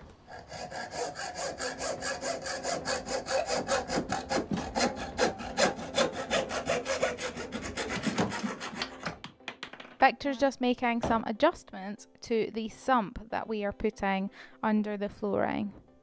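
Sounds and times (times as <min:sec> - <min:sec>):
hacksaw cutting plastic: 0:00.3 - 0:09.2.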